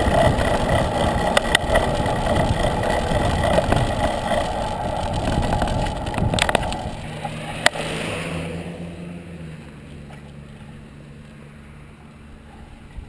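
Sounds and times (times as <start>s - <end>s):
sharp clicks: 0.0s - 7.8s
wind rushing over microphone: 0.0s - 8.7s.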